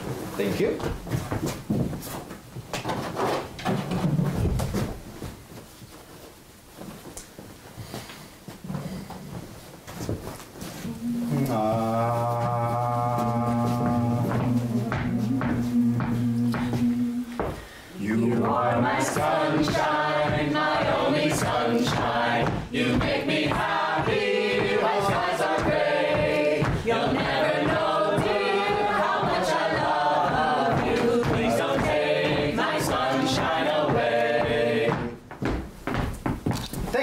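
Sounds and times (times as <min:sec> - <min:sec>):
group of voices singing: 0:10.8 - 0:35.3.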